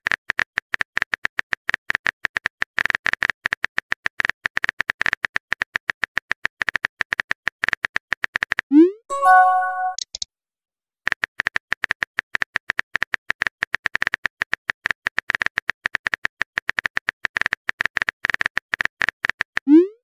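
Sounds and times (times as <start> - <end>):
message received chime: 9.1 - 10.2
phone keyboard typing clicks: 9.2 - 10.2.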